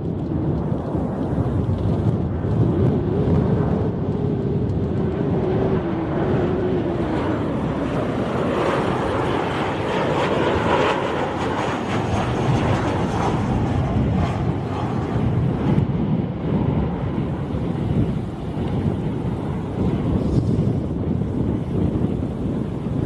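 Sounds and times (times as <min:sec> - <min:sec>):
jet airliner passing low rumble: 0:00.0 - 0:23.0
jet engine hiss: 0:06.0 - 0:15.9, 0:16.9 - 0:23.0.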